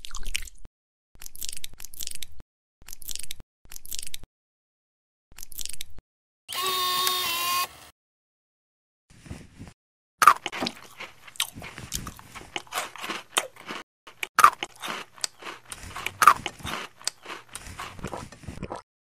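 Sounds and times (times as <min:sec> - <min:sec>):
cookie crunching: 0:10.2 - 0:18.8
crackly chewing: 0:10.2 - 0:18.8.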